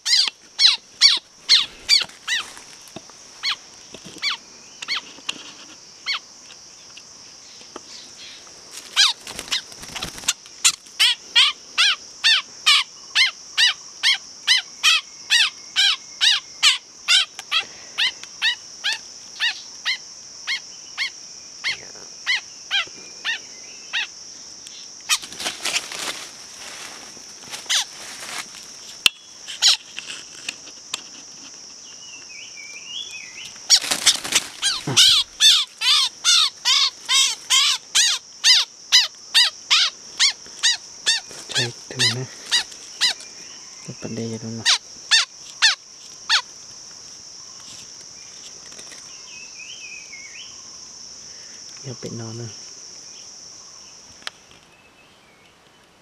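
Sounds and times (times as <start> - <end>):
songbird short sharp calls: 0.0 - 2.5, 32.3 - 46.4
rustling and flapping: 8.7 - 10.9, 25.1 - 28.9, 33.5 - 35.4.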